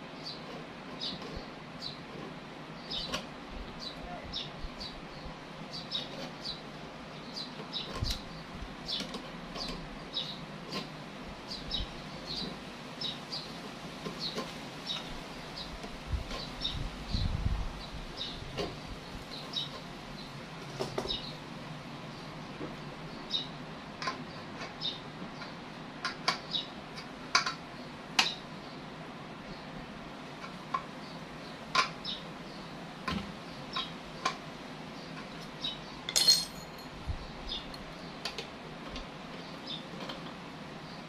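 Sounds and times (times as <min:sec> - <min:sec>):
metal clatter: 0:36.1 - 0:37.0
metallic clinks of hand tools: 0:36.1 - 0:37.0.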